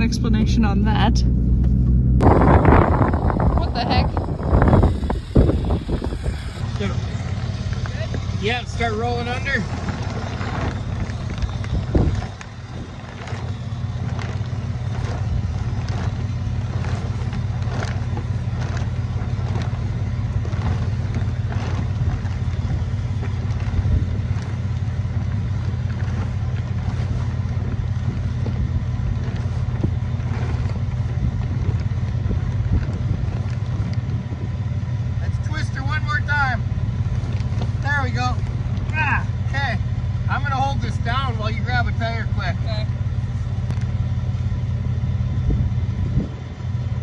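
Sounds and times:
wind buffeting microphone: 0.0 - 47.0
plastic bag flapping and crackling: 2.2 - 34.4.

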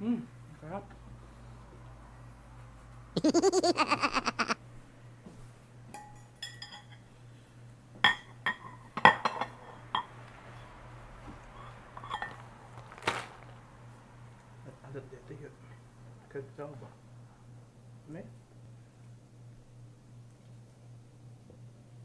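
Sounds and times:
fork clinking glass bowls: 6.0 - 7.0.

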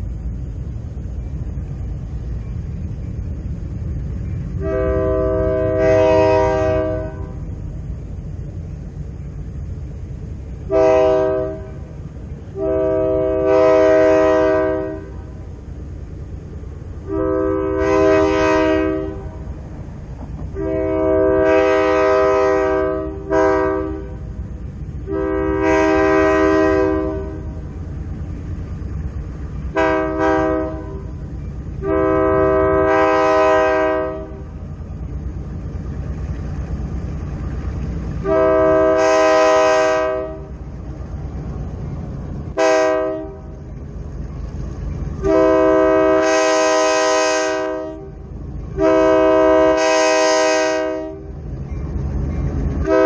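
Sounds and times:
low train rumble: 0.0 - 53.0
locomotive air horn blasts: 4.6 - 7.4, 10.7 - 11.9, 12.5 - 15.4, 17.0 - 19.4, 20.5 - 24.3, 25.0 - 27.6, 29.7 - 31.2, 31.8 - 34.6, 38.2 - 40.6, 42.6 - 43.6, 45.2 - 48.2, 48.8 - 51.3.

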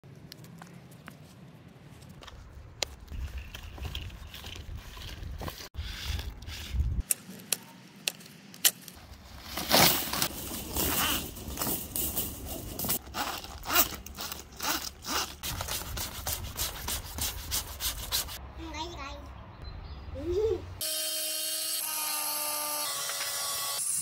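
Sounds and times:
cable scraping over gravel: 9.2 - 15.7.

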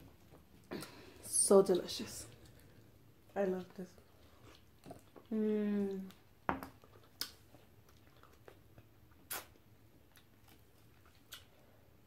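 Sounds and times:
faint clicks and smacks of eating: 0.0 - 12.0.

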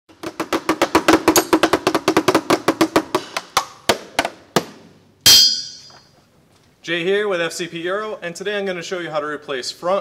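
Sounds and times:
metallic hit with ringing tail: 5.3 - 5.9.

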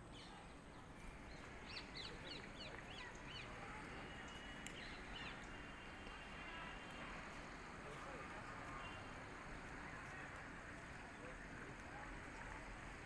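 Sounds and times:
faint background noise: 0.0 - 13.0
bird chirping: 0.1 - 6.1.

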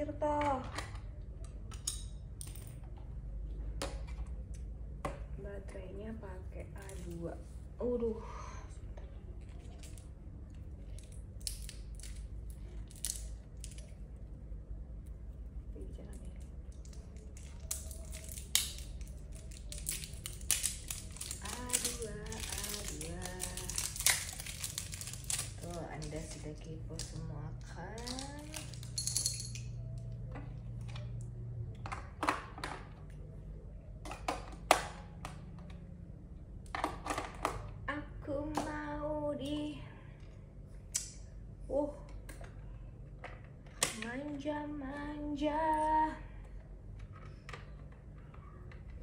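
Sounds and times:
steady low hum: 0.0 - 49.0
plastic wrapping crinkling and tearing: 16.8 - 26.4.

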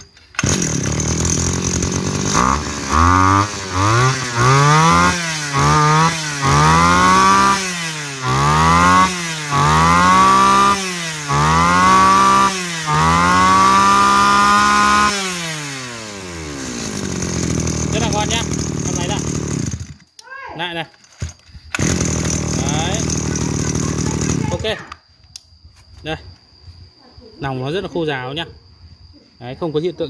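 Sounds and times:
brush-cutter engine revving: 0.0 - 20.1, 21.2 - 24.8.

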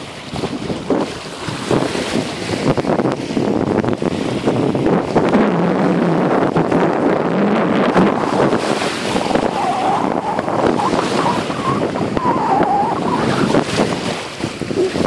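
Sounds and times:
wind buffeting microphone: 0.0 - 15.0
small waves lapping: 7.5 - 15.0.

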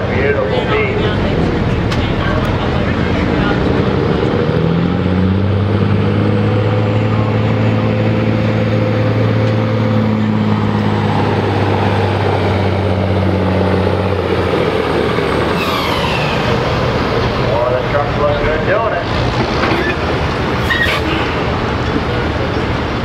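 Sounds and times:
diesel truck engine under load: 0.0 - 23.0
high falling whine: 6.2 - 18.7.

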